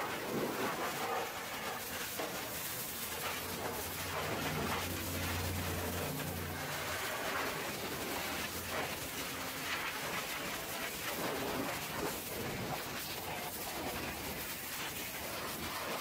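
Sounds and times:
water jet spraying on metal: 0:00.0 - 0:16.0
low hum: 0:03.1 - 0:09.6.

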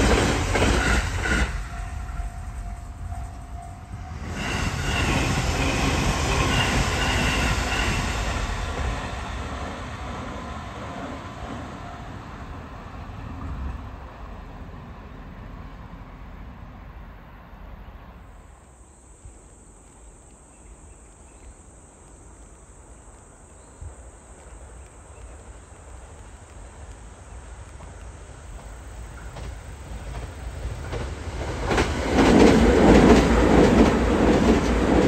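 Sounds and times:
insects trilling: 0:00.0 - 0:12.4, 0:18.3 - 0:35.0
electric train running: 0:00.0 - 0:13.3
approaching train rumble: 0:00.0 - 0:21.0, 0:21.9 - 0:35.0.

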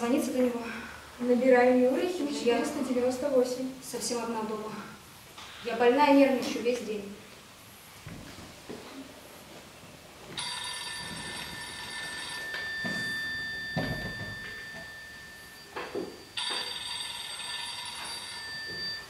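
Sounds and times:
telephone ringing: 0:10.4 - 0:19.0
thin steady tone: 0:10.4 - 0:19.0.

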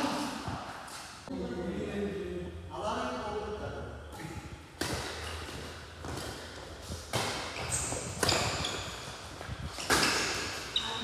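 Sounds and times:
rackets hitting shuttlecock: 0:04.8 - 0:08.9.

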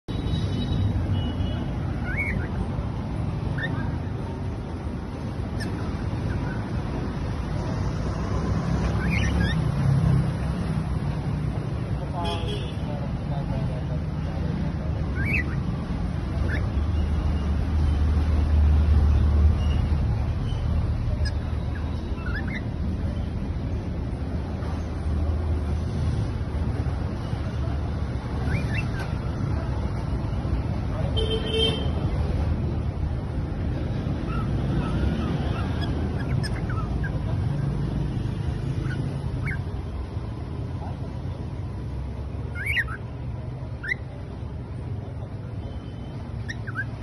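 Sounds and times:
street traffic rumble: 0:00.0 - 0:47.0
cockatiel chirps: 0:00.8 - 0:02.7, 0:03.4 - 0:04.3, 0:05.5 - 0:06.8, 0:08.8 - 0:09.7, 0:15.1 - 0:15.7, 0:16.4 - 0:17.2, 0:19.6 - 0:22.8, 0:28.4 - 0:29.3, 0:34.2 - 0:37.7, 0:38.6 - 0:39.8, 0:42.5 - 0:43.1, 0:43.8 - 0:44.1, 0:45.7 - 0:47.0.

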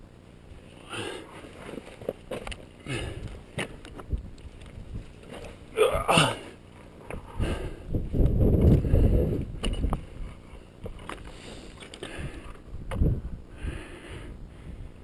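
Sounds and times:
wind on microphone: 0:04.0 - 0:05.1, 0:07.1 - 0:10.4, 0:12.2 - 0:15.0.

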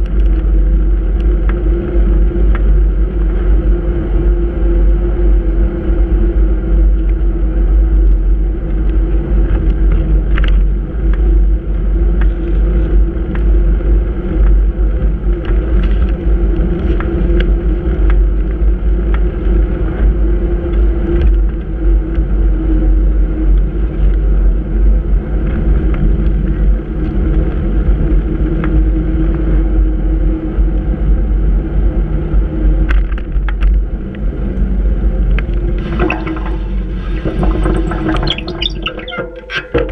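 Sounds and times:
steady hum: 0:34.3 - 0:39.9.

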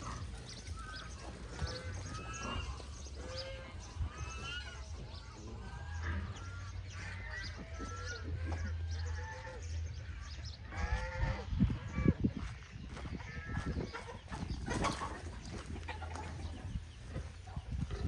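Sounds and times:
farm animals bleating: 0:00.0 - 0:14.2
steady low rumble: 0:00.0 - 0:14.6.

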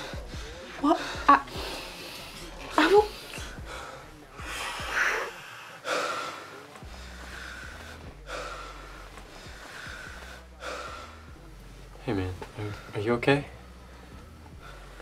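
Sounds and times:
man gasping rasping breaths: 0:00.0 - 0:11.5.

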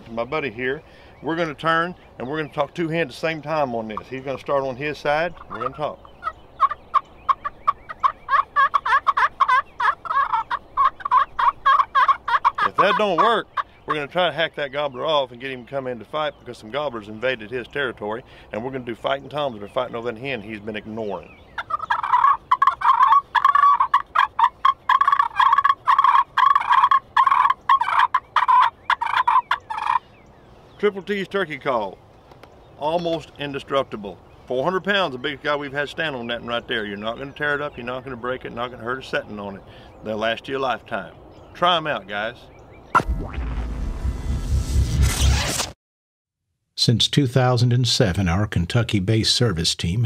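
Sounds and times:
turkey call yelps: 0:05.3 - 0:14.1, 0:21.5 - 0:30.1.

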